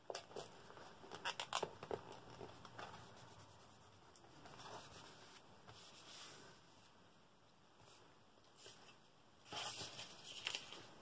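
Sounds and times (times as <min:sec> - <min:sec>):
paper rustling and clicks: 0:09.5 - 0:10.9.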